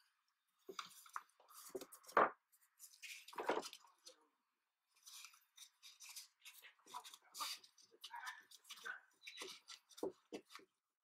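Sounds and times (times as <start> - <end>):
cable and plastic parts rustling: 0.6 - 4.2.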